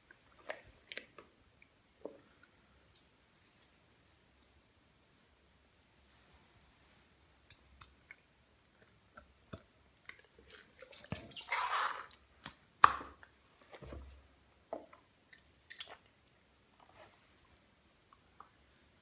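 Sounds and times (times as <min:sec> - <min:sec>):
wet squelching of slime: 0:07.5 - 0:14.2, 0:14.8 - 0:17.6.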